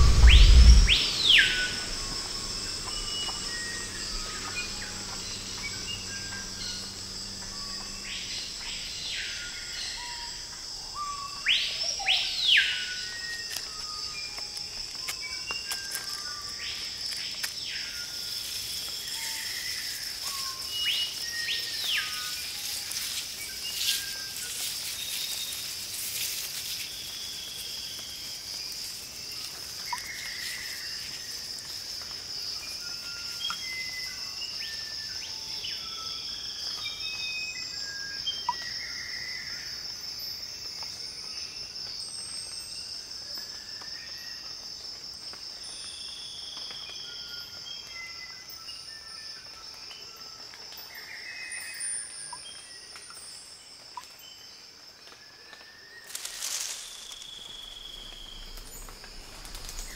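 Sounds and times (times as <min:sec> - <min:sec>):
high-pitched insect drone: 0:00.0 - 0:59.9.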